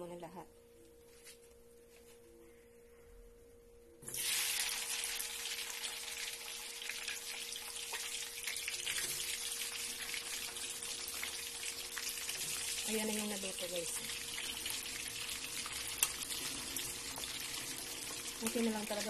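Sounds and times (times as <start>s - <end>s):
food frying in hot oil: 4.1s - 19.0s.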